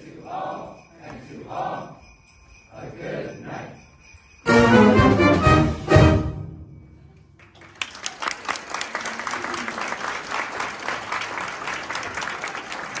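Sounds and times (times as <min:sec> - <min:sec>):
sleigh bells shaking: 0:00.0 - 0:07.8
audience applause: 0:07.4 - 0:13.0.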